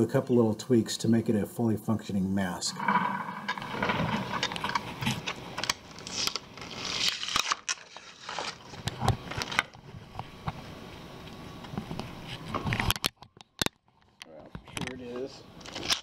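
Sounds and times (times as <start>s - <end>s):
plastic clicks cracks and scraping: 2.9s - 10.3s, 11.7s - 16.0s.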